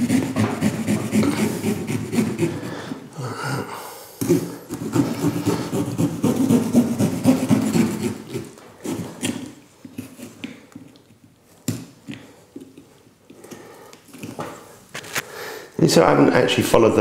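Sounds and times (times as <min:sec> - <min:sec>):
saw sawing through pumpkin: 0:00.0 - 0:03.2, 0:04.2 - 0:10.3.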